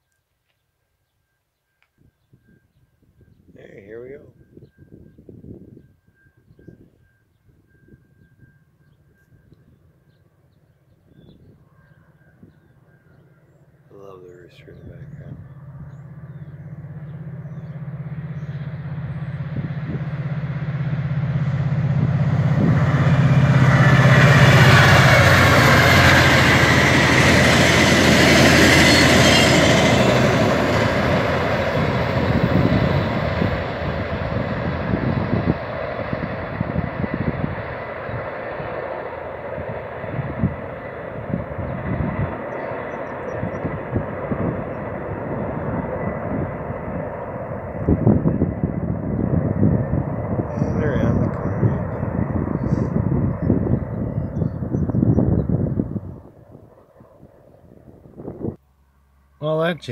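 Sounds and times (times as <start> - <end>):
locomotive engine drone: 1.7 - 59.9.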